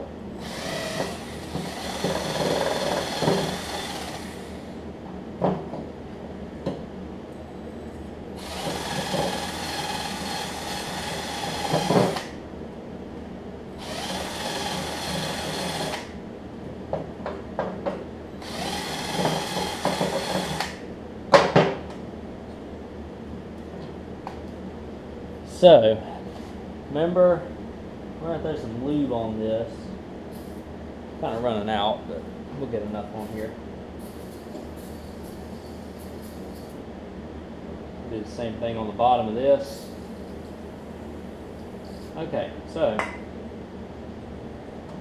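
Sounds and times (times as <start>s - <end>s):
cordless drill with wire brush: 0.4s - 4.6s, 8.4s - 12.3s, 13.8s - 16.1s, 18.4s - 20.7s.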